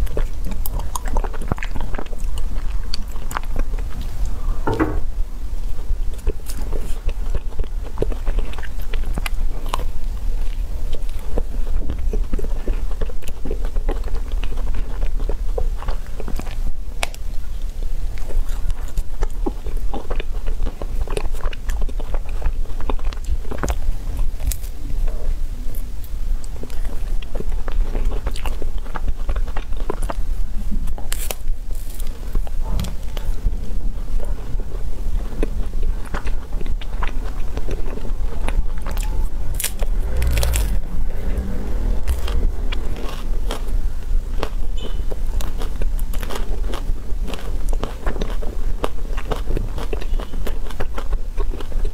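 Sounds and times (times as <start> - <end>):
wet mouth clicks and chewing: 0.0 - 5.0, 6.0 - 51.9
steady low rumble: 0.0 - 20.2, 31.7 - 48.6
crunching of waffle cone: 26.5 - 51.9.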